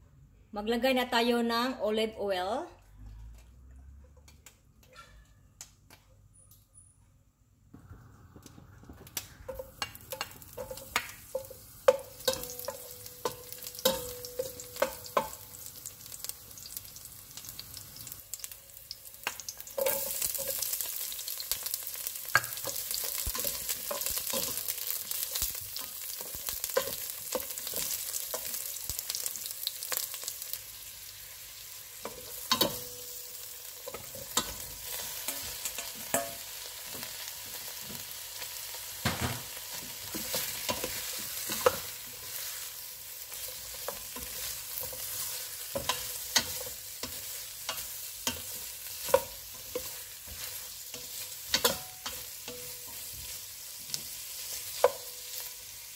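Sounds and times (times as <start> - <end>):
garlic and onions sizzling in oil: 8.2 - 55.9
spatula clinking against pot: 9.5 - 15.4, 35.2 - 36.5, 43.3 - 53.3.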